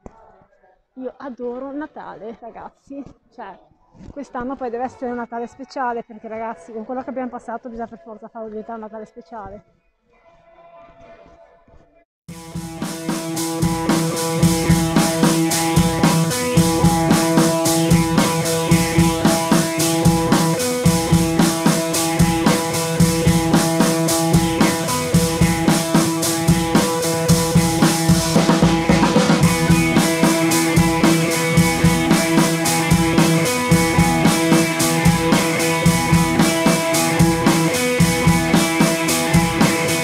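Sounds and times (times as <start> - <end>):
drum-kit beat: 12.3 - 40.0
sustained tones: 12.4 - 40.0.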